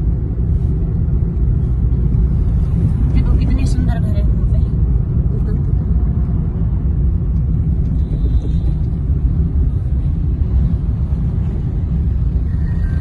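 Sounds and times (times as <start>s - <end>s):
car road and engine rumble: 0.0s - 13.0s.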